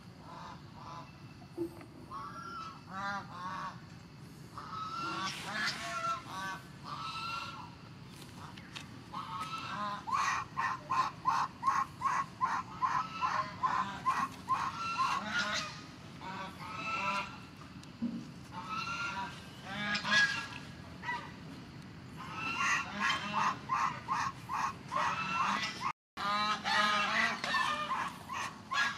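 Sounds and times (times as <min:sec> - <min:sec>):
goose honking: 0:09.1 - 0:11.5, 0:12.5 - 0:17.4, 0:18.5 - 0:21.3, 0:22.2 - 0:28.9.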